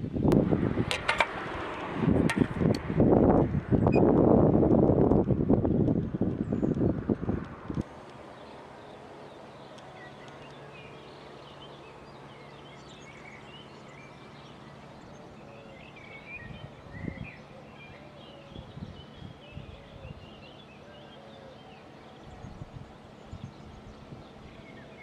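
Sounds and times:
wind bumps on microphone: 0.0s - 7.9s, 16.4s - 17.4s
faint steady hum: 0.0s - 25.0s
small birds chirping: 5.2s - 25.0s.

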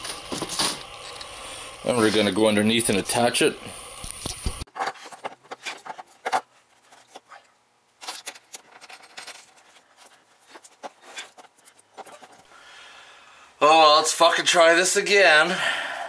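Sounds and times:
light metal scraping: 4.7s - 12.5s
wrench and bolts clinking: 8.0s - 10.2s.

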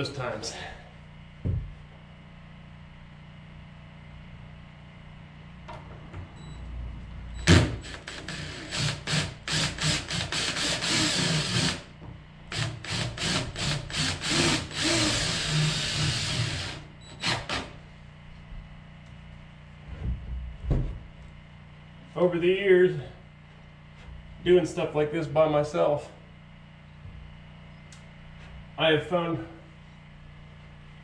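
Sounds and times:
cordless drill into wood: 7.5s - 11.8s, 12.5s - 17.7s.

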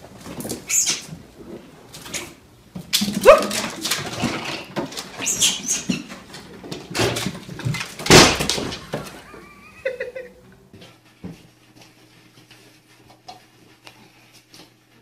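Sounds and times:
knocks and scrabbling: 0.0s - 9.4s
pet yelping: 3.2s - 3.7s.

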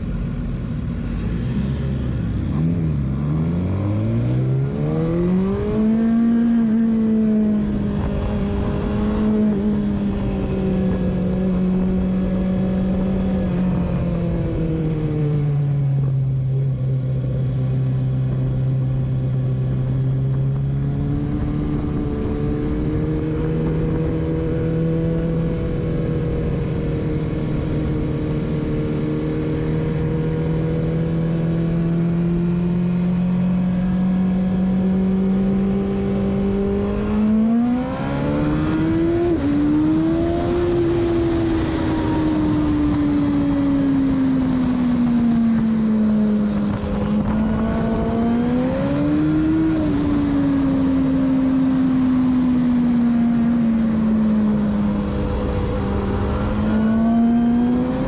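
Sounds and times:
motorcycle engine: 0.0s - 58.0s
wind rush: 36.4s - 58.0s.

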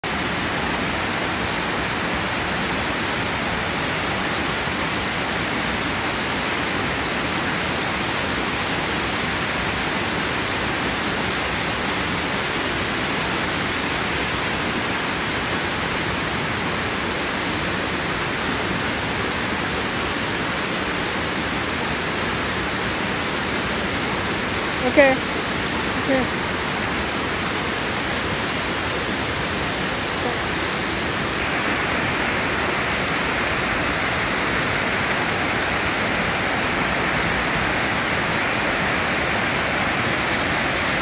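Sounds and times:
stream water rushing over rocks: 0.0s - 41.0s.

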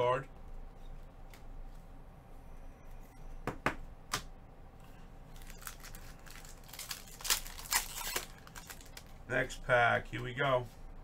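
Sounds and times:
plastic wrappers crinkling: 5.3s - 9.2s.

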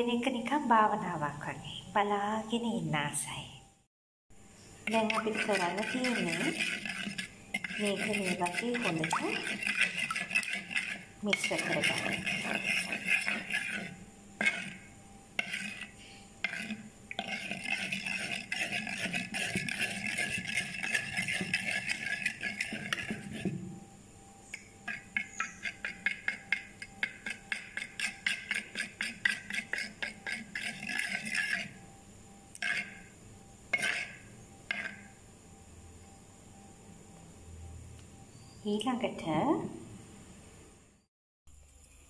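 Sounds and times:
spoon mixing batter in bowl: 4.9s - 23.7s, 24.6s - 31.8s, 32.6s - 33.1s, 33.8s - 35.0s.

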